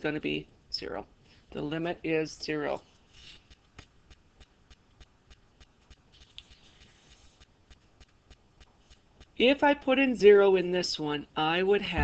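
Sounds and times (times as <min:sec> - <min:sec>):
faint ticking: 0:02.9 - 0:09.9.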